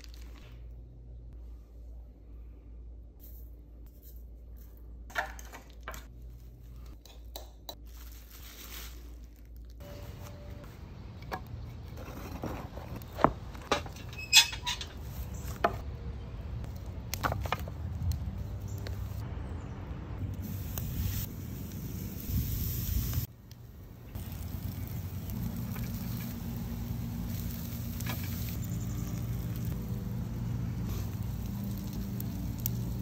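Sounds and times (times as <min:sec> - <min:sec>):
spices rustling: 0:03.2 - 0:13.6, 0:24.1 - 0:33.0
firewood knocking and clattering: 0:11.1 - 0:15.8, 0:17.1 - 0:17.9.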